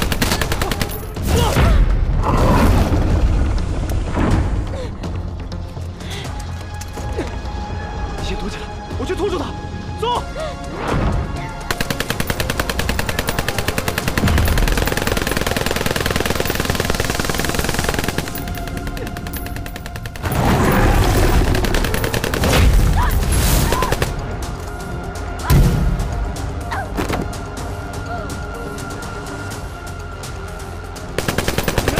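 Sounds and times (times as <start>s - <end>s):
rapid automatic gunfire: 0.0s - 1.2s, 11.7s - 22.9s, 31.2s - 31.9s.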